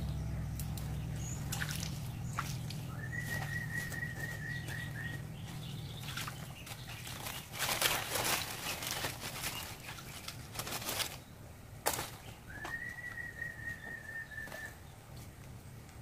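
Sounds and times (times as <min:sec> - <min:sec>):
dry leaves rustling and crackling: 0:00.1 - 0:12.9
bird calling short notes: 0:01.2 - 0:05.6.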